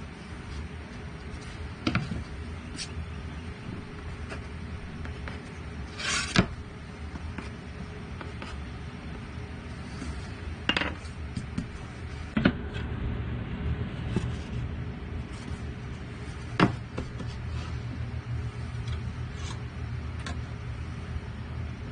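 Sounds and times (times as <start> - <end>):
steady low hum: 0.0 - 21.9
board scratching: 3.7 - 12.4, 14.0 - 20.4
wooden board and tools knocking: 16.6 - 17.3.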